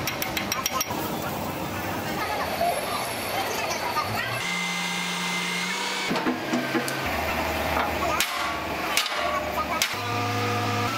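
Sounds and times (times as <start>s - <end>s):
hammer striking metal: 8.2s - 10.0s.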